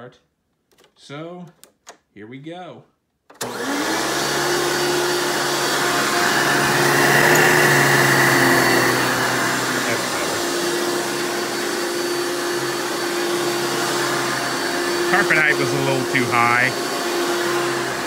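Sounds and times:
vacuum cleaner motor whine: 0:03.4 - 0:18.0
vacuum cleaner switch click: 0:07.2 - 0:07.7.

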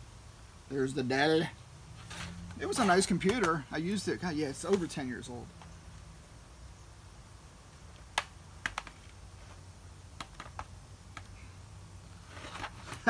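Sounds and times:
rustling scrape: 0:01.9 - 0:03.1, 0:12.2 - 0:13.0
plastic clicks and taps of laptop: 0:08.1 - 0:09.0, 0:10.2 - 0:11.4.

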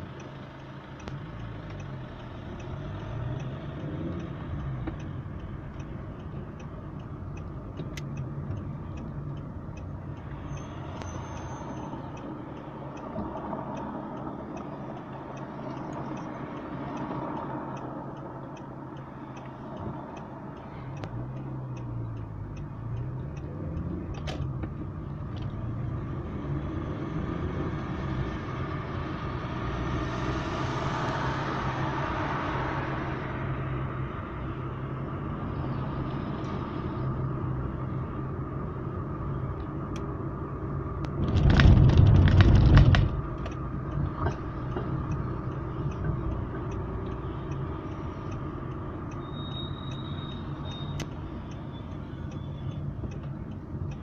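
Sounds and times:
faint regular ticking: 0:00.0 - 0:26.3, 0:43.2 - 0:54.0
car engine and road noise: 0:00.0 - 0:54.0.

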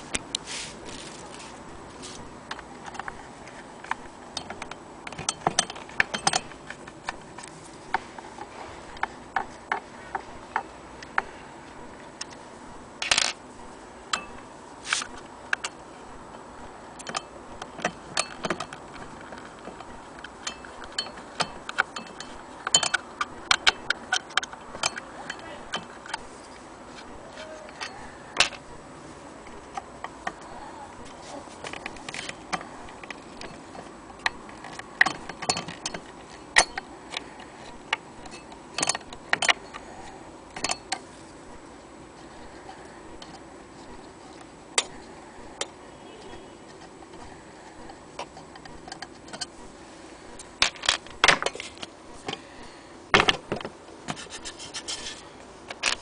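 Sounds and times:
metal parts clicking: 0:03.8 - 0:07.6, 0:17.0 - 0:26.6, 0:31.6 - 0:41.1, 0:55.7 - 0:56.0.

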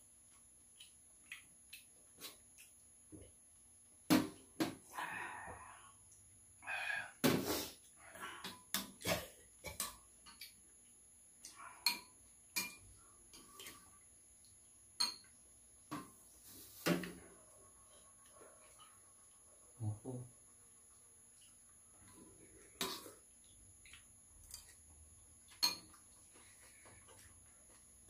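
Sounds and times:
spoons and mugs clinking on bowls: 0:11.8 - 0:13.9, 0:14.9 - 0:15.4, 0:24.4 - 0:24.8, 0:25.4 - 0:26.2.

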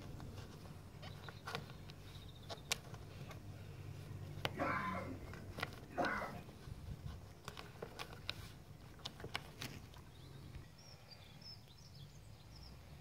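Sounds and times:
low outdoor rumble: 0:00.0 - 0:13.0
bird chirps: 0:10.0 - 0:13.0.

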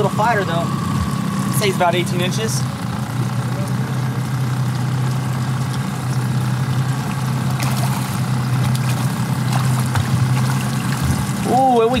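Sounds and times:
boat engine running: 0:00.0 - 0:12.0
fish splashing at surface: 0:04.6 - 0:11.5.

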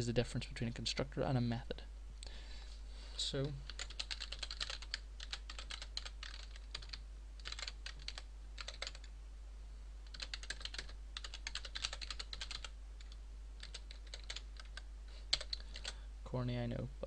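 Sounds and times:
computer keyboard typing: 0:03.7 - 0:09.1, 0:10.0 - 0:16.0.

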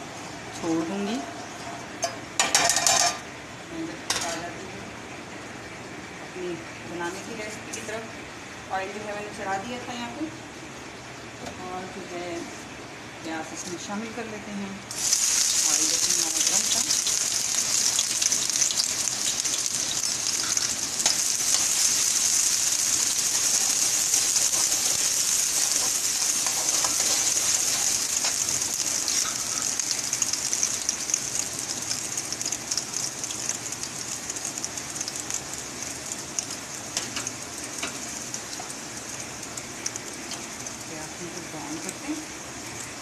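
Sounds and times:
onions sizzling in oil: 0:00.2 - 0:03.1, 0:14.9 - 0:43.0.

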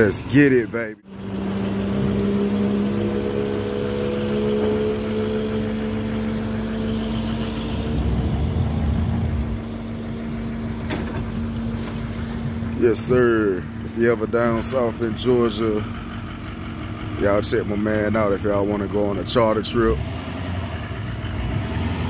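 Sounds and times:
engine idling: 0:00.0 - 0:20.0, 0:20.6 - 0:22.0
low rumble: 0:06.2 - 0:18.6.

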